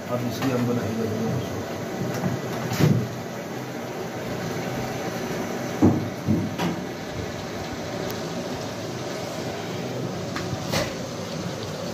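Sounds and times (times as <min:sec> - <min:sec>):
meat frying with rushing hiss: 0:00.0 - 0:11.9
knock: 0:05.8 - 0:06.8.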